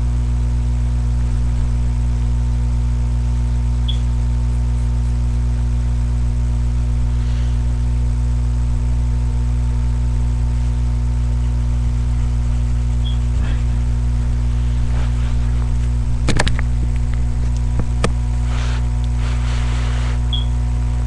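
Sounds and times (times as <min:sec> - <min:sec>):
electrical hum: 0:00.0 - 0:21.0
faint high chirp: 0:03.8 - 0:04.1, 0:20.3 - 0:20.6.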